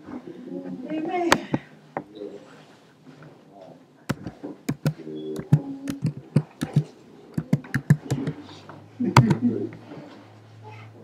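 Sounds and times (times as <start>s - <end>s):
sharp knocks and taps: 4.1s - 8.4s, 9.2s - 9.4s.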